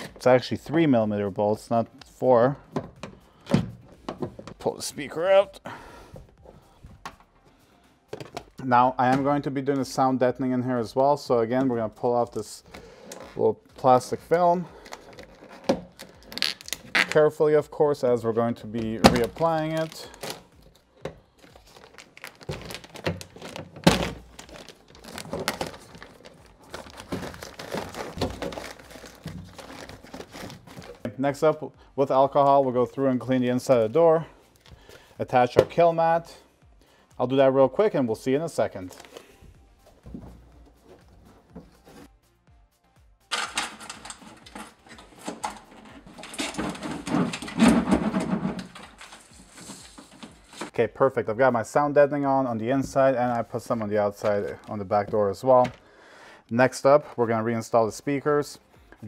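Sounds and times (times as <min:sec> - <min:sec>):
plastic film crinkling: 0:14.8 - 0:17.2, 0:19.0 - 0:31.1, 0:43.3 - 0:50.7.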